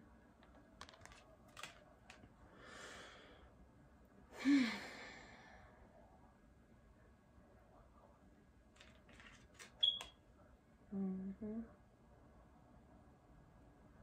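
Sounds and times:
cards clicking: 0:00.4 - 0:02.3, 0:08.8 - 0:10.1
woman breathing in: 0:02.5 - 0:03.5
woman sighing: 0:04.3 - 0:05.4.

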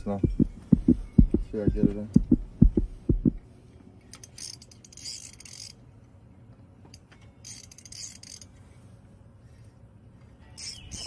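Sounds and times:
low thumps: 0:00.0 - 0:03.4
fishing reel ratcheting: 0:04.1 - 0:05.8, 0:07.4 - 0:08.5, 0:10.6 - 0:11.0.

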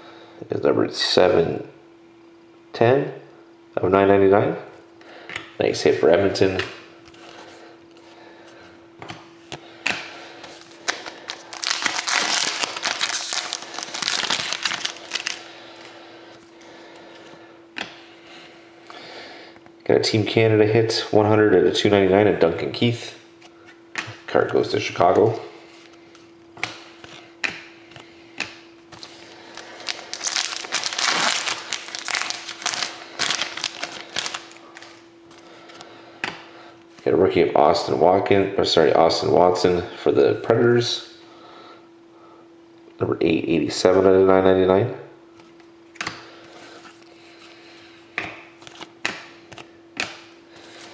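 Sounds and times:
wrapper tearing and crinkling: 0:10.6 - 0:15.4, 0:29.0 - 0:35.0.

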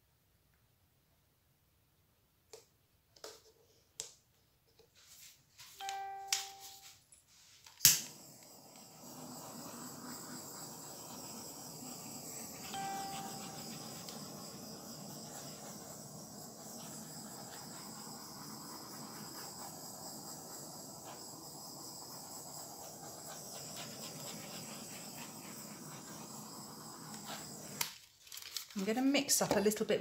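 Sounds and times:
faint steady hiss: 0:00.0 - 0:30.0
thin high-pitched whine: 0:05.8 - 0:07.1, 0:08.0 - 0:27.8.

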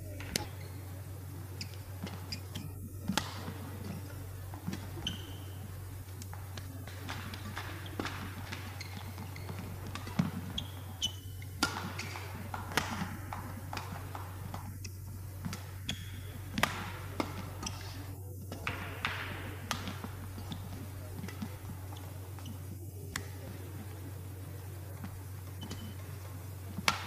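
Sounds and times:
shoes squeaking on court: 0:00.0 - 0:24.0, 0:24.9 - 0:27.0
steady low hum: 0:00.0 - 0:27.0
racket striking shuttlecock: 0:06.2 - 0:17.9, 0:18.5 - 0:21.5.

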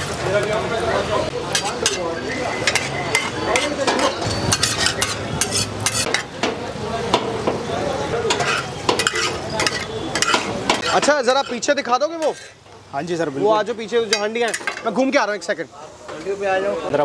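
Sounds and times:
steady sizzle: 0:00.0 - 0:17.0
metal spatula scraping on a griddle: 0:01.4 - 0:06.4, 0:08.3 - 0:12.7, 0:14.0 - 0:15.0.

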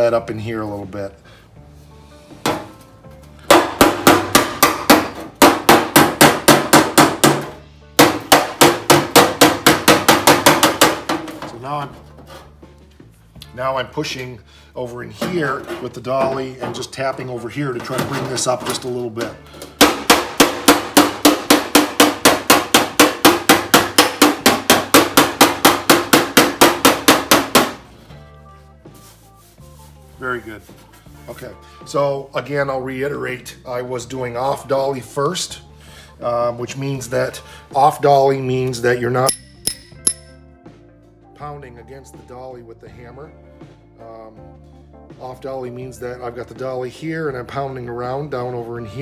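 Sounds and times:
hammer tapping on sheet steel: 0:03.5 - 0:11.4, 0:19.7 - 0:27.8, 0:39.3 - 0:40.3.

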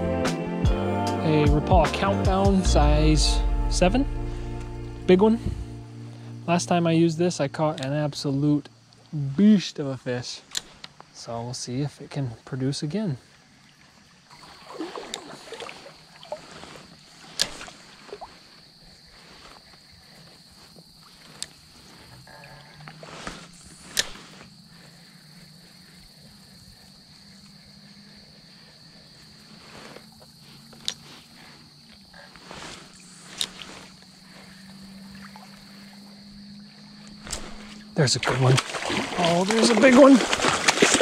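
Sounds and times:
faint creek water: 0:02.6 - 0:41.0
rod and reel clicks: 0:10.5 - 0:11.1, 0:17.2 - 0:17.8, 0:23.2 - 0:24.5, 0:33.0 - 0:34.0.

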